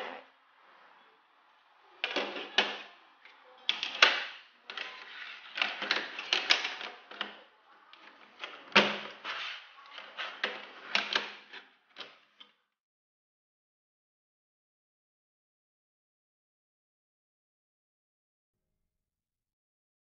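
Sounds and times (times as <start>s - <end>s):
plastic toy track clicking: 2.0s - 12.5s.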